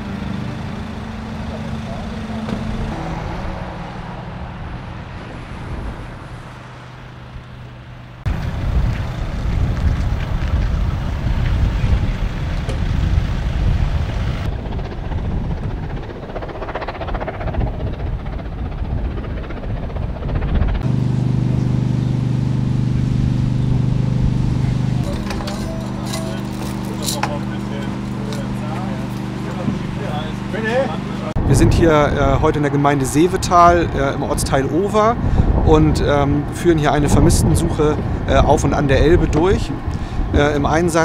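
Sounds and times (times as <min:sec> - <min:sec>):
diesel engines idling: 0:00.0 - 0:14.5, 0:20.8 - 0:41.0
wind buffeting microphone: 0:00.0 - 0:21.0, 0:23.0 - 0:41.0
low engine hum: 0:00.0 - 0:41.0.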